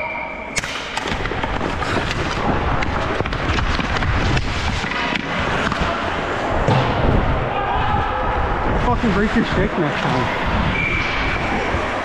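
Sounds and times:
hockey sticks clacking: 0.6 - 6.9
skate blades scraping ice: 1.0 - 6.5.

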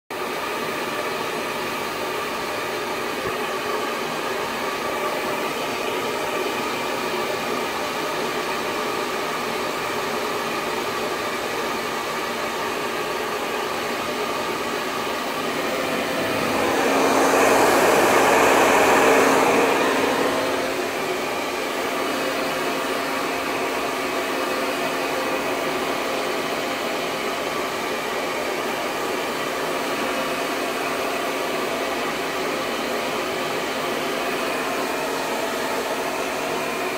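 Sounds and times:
blow dryer whirring: 0.2 - 36.9.

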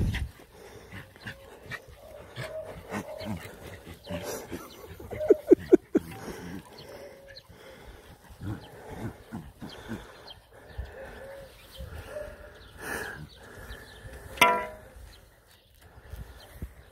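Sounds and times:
dogs growling: 0.4 - 11.5.

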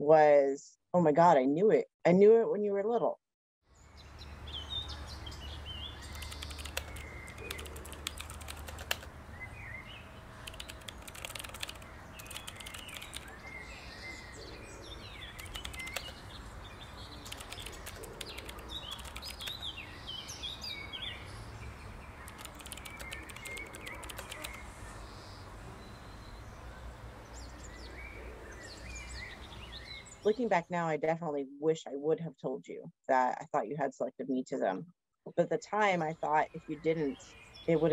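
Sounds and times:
birds chirping: 3.8 - 30.5
tapping on phone keyboard: 6.2 - 9.1, 10.5 - 13.3, 15.4 - 16.1, 17.3 - 19.6, 22.3 - 24.6.

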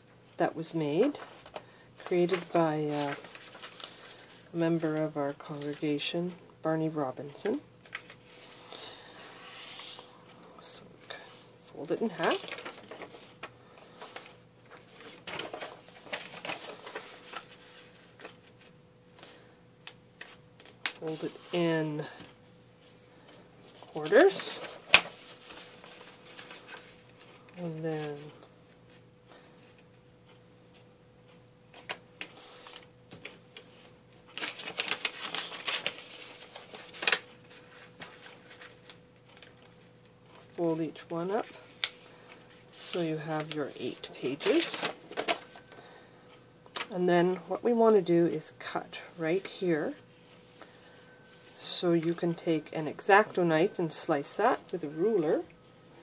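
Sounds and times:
paper rustling and crinkling: 1.0 - 6.1, 7.4 - 18.8, 19.8 - 29.0, 31.7 - 45.9
paper sharp crackle: 1.1 - 4.4, 7.4 - 10.1, 12.0 - 18.7, 19.8 - 28.3, 31.7 - 40.4, 41.4 - 45.8.

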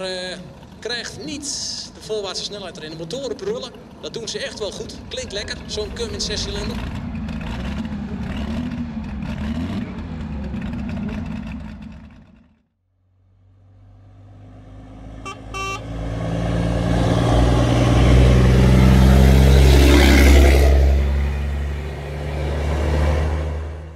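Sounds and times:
tractor engines running: 0.0 - 12.6, 14.8 - 23.9
road noise: 0.0 - 23.9
lorry engine droning: 4.9 - 12.5, 13.2 - 23.9
lorry horn toot: 15.2 - 15.9.

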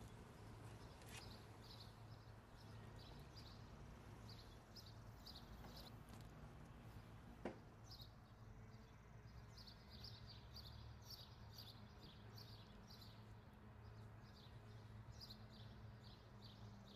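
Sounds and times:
bird chirping: 7.8 - 16.9.

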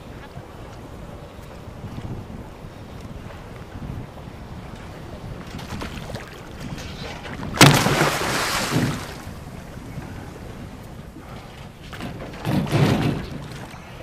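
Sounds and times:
wind: 0.0 - 14.0
shark splashing at surface: 7.6 - 9.2
water washing: 7.6 - 9.4.

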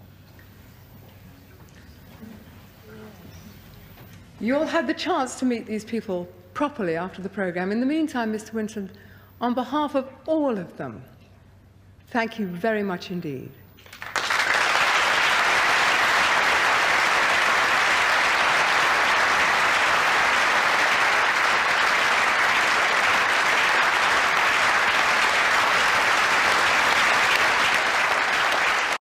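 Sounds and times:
audience applauding: 13.8 - 29.0.

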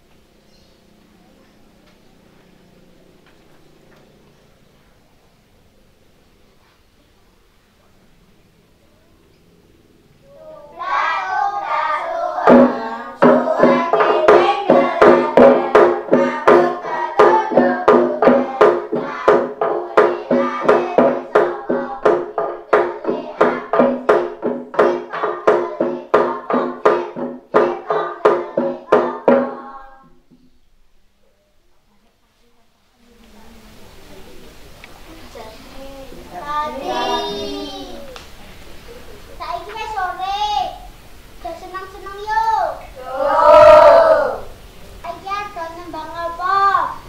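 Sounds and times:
children singing: 10.3 - 30.1, 36.2 - 38.2, 43.0 - 44.5
regular percussive strikes: 10.8 - 30.5.

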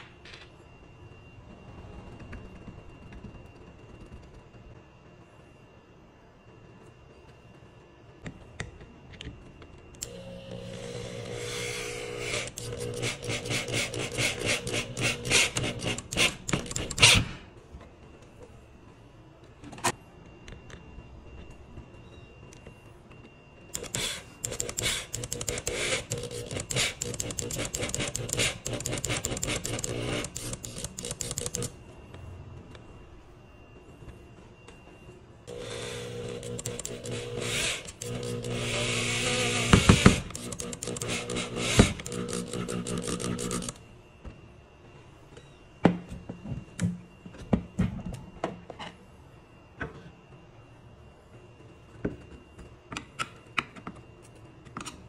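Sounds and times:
electric drill driving a screw: 10.0 - 17.4, 23.7 - 31.7, 35.5 - 43.8.

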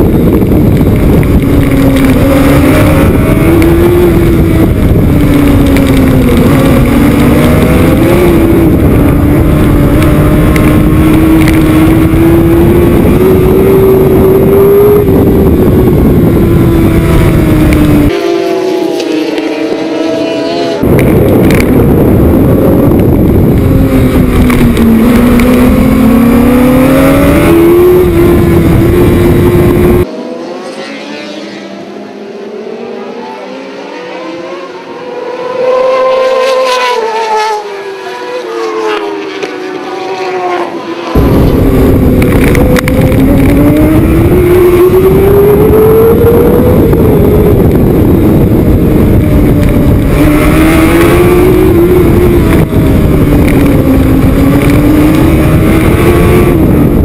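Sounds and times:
wind rush: 0.0 - 30.2, 41.0 - 57.0
motorcycles passing by: 0.0 - 32.2, 32.8 - 57.0
motorcycle engine revving: 0.0 - 57.0.

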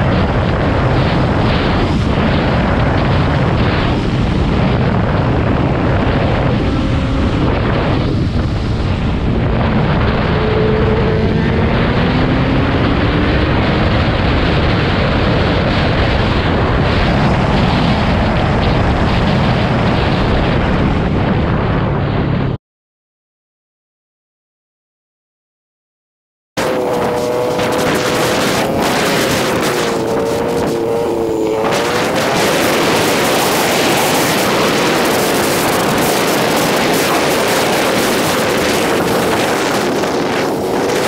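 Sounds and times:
motorcycle engine running: 0.0 - 19.3, 26.6 - 41.0
wind rushing on helmet: 0.0 - 22.6, 26.6 - 41.0.

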